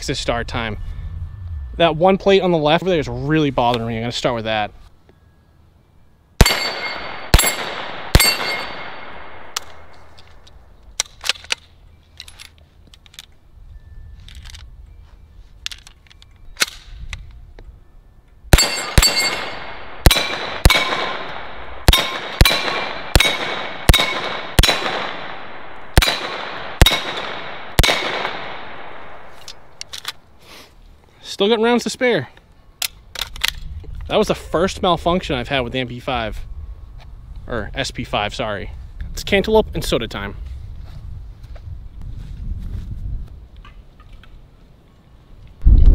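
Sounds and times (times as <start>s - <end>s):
rifle shots: 6.4s - 10.2s, 18.5s - 29.7s.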